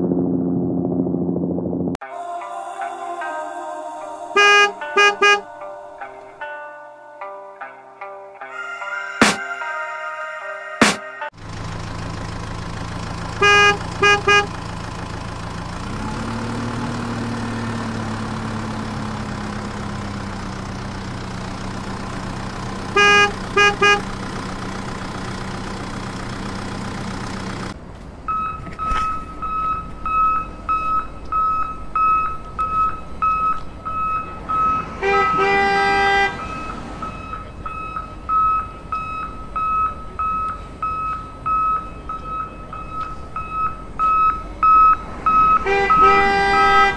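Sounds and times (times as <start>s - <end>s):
horn blast: 3.4s - 6.3s, 13.4s - 14.5s, 22.9s - 24.2s, 34.2s - 37.8s, 45.4s - 46.9s
truck horn toots: 4.4s - 5.7s, 13.2s - 14.8s, 22.7s - 24.4s, 29.7s - 46.9s
reversing beeper: 4.4s - 6.6s, 28.3s - 46.9s
diesel truck engine idling: 11.3s - 46.9s.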